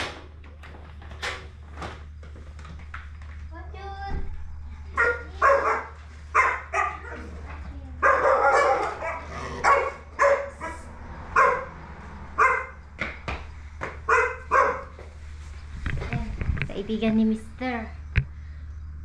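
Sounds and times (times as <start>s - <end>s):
dog barking: 4.9s - 7.4s, 8.0s - 12.8s, 14.0s - 15.0s.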